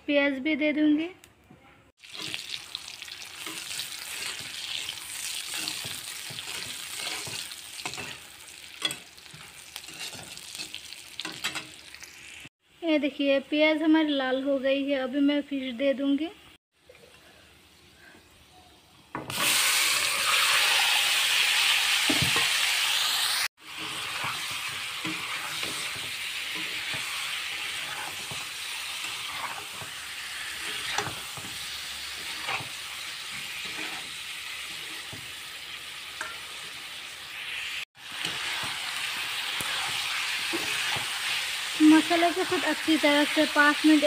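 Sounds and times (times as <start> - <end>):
fish sizzling in hot oil: 2.0 - 12.5, 19.2 - 44.0
spatula scraping a pan: 3.4 - 11.8, 23.6 - 36.9, 38.0 - 43.4.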